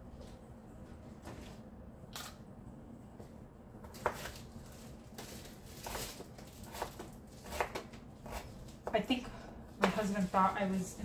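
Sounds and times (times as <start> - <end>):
knife cutting on cutting board: 6.6 - 8.5.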